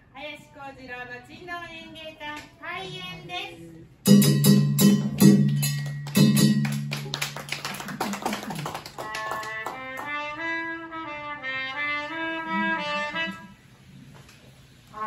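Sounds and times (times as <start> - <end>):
drums and gong stroke: 4.0 - 7.1
wind instrument slow melody: 9.0 - 13.8.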